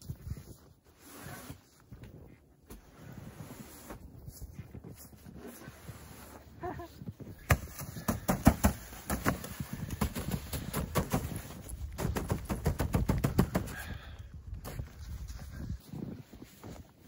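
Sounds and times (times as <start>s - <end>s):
hand thumping fabric wall: 7.4s - 11.2s.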